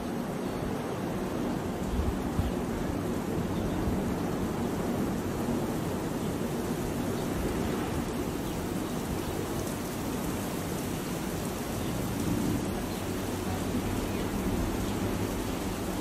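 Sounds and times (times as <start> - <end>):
wind and rain roaring: 0.0 - 16.0.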